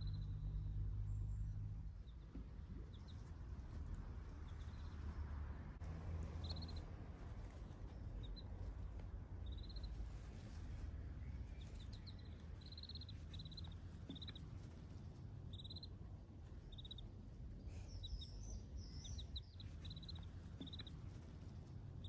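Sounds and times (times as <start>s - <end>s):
low steady rumble: 0.0s - 22.0s
ducklings peeping: 1.9s - 5.4s, 6.3s - 22.0s.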